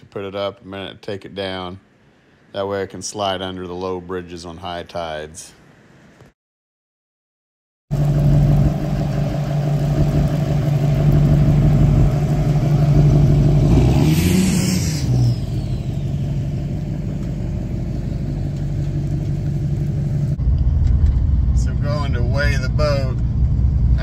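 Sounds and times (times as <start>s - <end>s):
truck engine passing: 7.9s - 24.0s.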